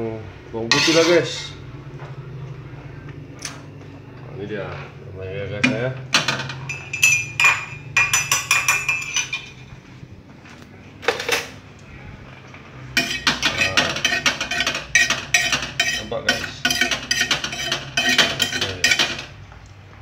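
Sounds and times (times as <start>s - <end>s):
metal spatula scraping pots: 0.6s - 1.6s, 5.6s - 9.7s, 13.0s - 19.4s.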